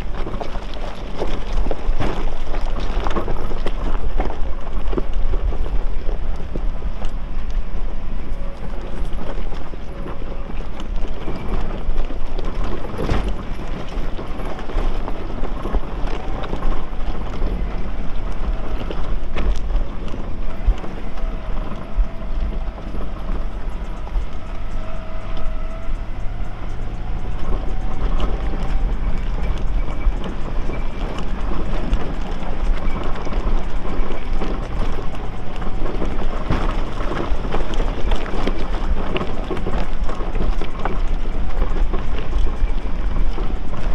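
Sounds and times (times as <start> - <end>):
engine low rumble: 0.0 - 43.9
tyres grinding over rocks: 0.0 - 43.9
vehicle body knocking and rattling: 0.0 - 43.9.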